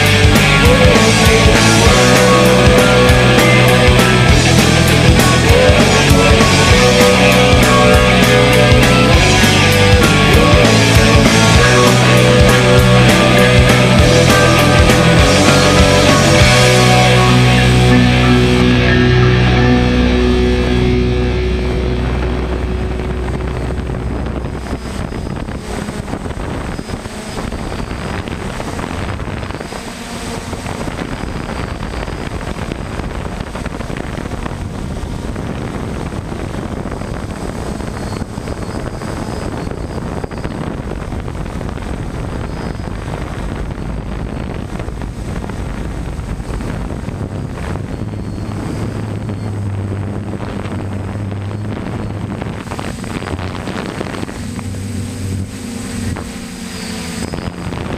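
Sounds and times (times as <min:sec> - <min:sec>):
music: 0:00.0 - 0:25.0
drone propellers whirring: 0:00.0 - 0:57.9
wind noise on microphone: 0:00.0 - 0:57.9.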